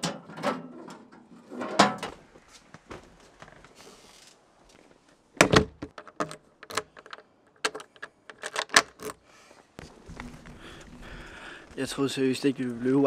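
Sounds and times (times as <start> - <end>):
front door thudding shut: 5.4 - 5.9.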